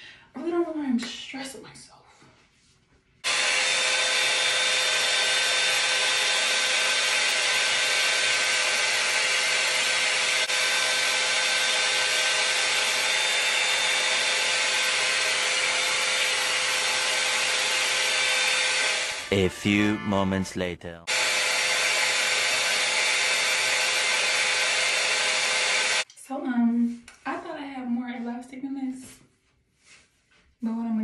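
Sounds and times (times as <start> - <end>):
hot air brush fan blowing: 3.2 - 19.3, 21.1 - 26.1.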